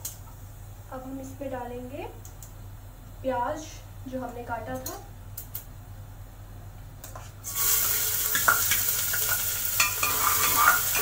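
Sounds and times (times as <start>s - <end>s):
onion sizzling in hot fat: 7.4s - 11.0s
spoon clinking and scraping metal: 8.3s - 11.0s.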